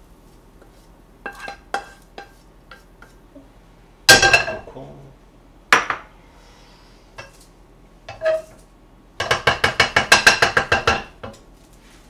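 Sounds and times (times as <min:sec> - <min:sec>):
wooden spatula knocking on wok: 0:09.2 - 0:11.4.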